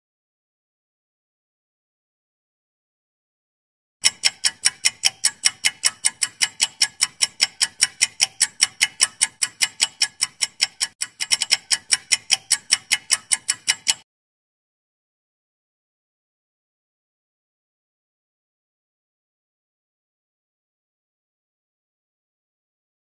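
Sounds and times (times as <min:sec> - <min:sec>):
fast clock ticking: 0:04.0 - 0:14.0.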